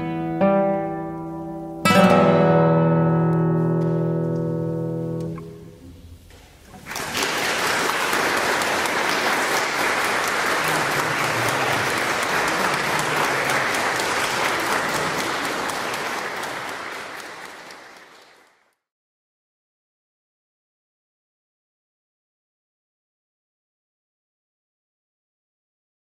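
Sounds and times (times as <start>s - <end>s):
crowd applause: 6.8s - 18.8s.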